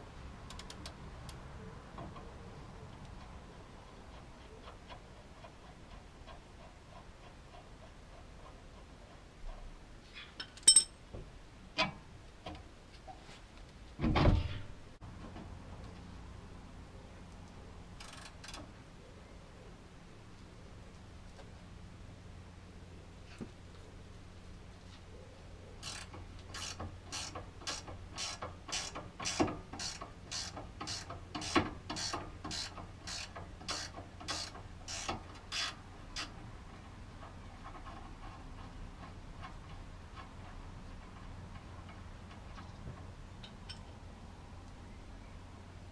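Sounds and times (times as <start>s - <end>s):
metal tools clinking: 10.4s - 11.0s
ratchet wrench clicking: 25.8s - 36.3s.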